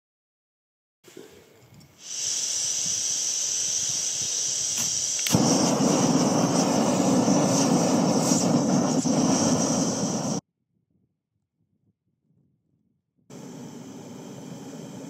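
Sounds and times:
gas flame rushing: 0:02.0 - 0:10.4, 0:13.3 - 0:15.0
gas hissing from burner: 0:02.0 - 0:10.4, 0:13.3 - 0:15.0.

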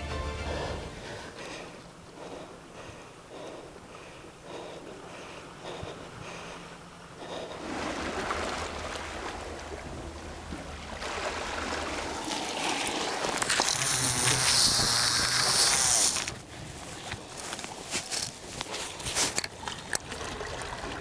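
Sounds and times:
low steady hum: 0:00.0 - 0:21.0
wind: 0:00.0 - 0:21.0
seawater washing against rocks: 0:07.3 - 0:21.0.

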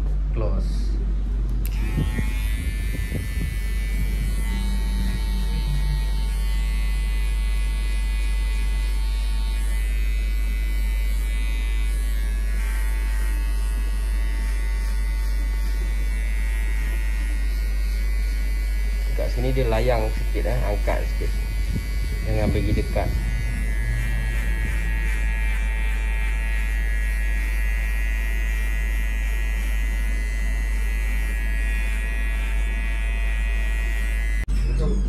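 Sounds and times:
low hum: 0:00.0 - 0:12.8, 0:20.6 - 0:26.7, 0:34.2 - 0:35.0
electric hair clipper buzzing: 0:01.5 - 0:34.5.

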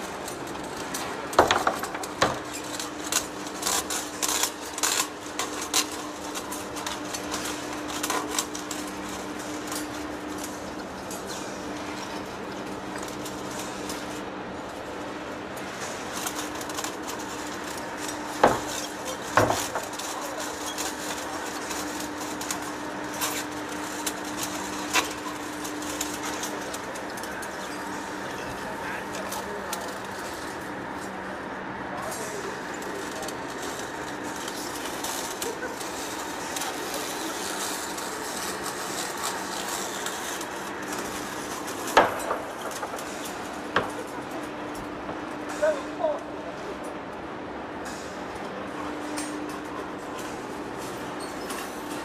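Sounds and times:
metal chips cracking and clicking: 0:32.4 - 0:44.1.

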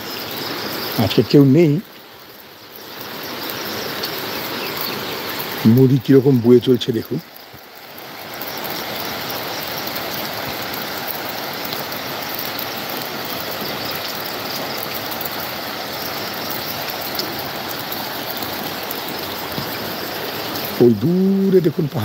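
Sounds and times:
fast-flowing river rushing: 0:07.3 - 0:22.0.

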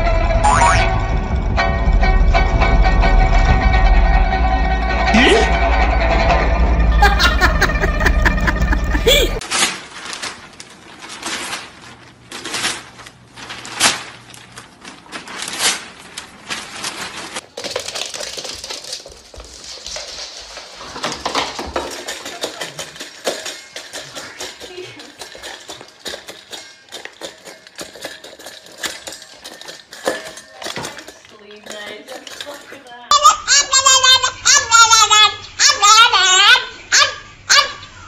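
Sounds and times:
dog eating from metal bowl: 0:17.4 - 0:33.1.

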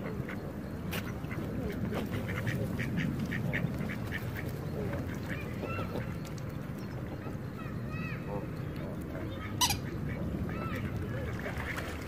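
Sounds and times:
ducks quacking: 0:00.0 - 0:06.2
low outdoor background: 0:00.0 - 0:12.0.

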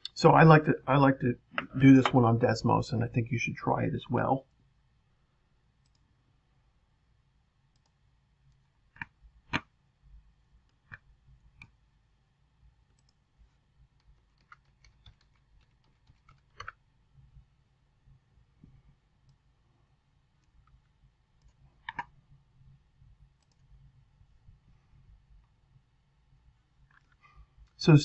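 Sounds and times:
mouse and keyboard clicks: 0:07.7 - 0:09.7, 0:21.4 - 0:22.2.

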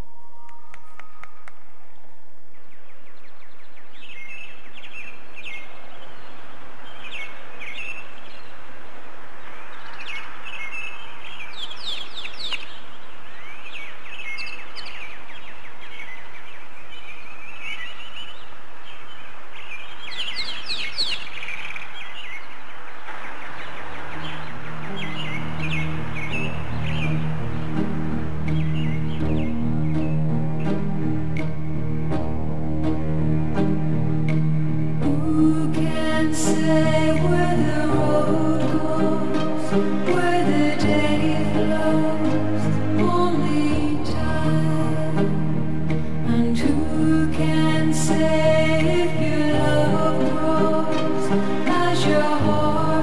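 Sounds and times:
recorded birdsong chirps and trills: 0:00.0 - 0:32.2
low music notes: 0:24.2 - 0:53.0.

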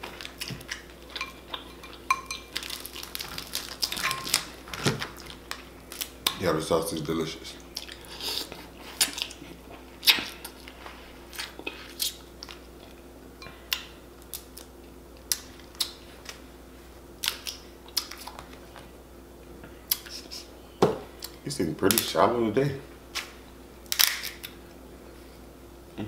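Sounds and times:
chewing and lip-smacking: 0:00.0 - 0:04.5, 0:07.6 - 0:13.0, 0:13.7 - 0:16.4, 0:17.2 - 0:18.6
crab shells cracking: 0:02.5 - 0:06.2, 0:23.9 - 0:24.6.

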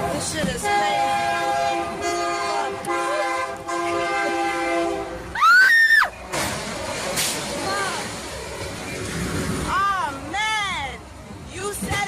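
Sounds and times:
locomotive air horn blasts: 0:00.0 - 0:05.3.

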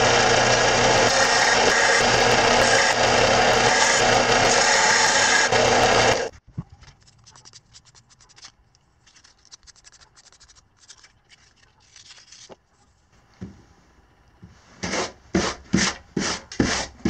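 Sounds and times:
belt and disc sander running: 0:00.0 - 0:06.3.

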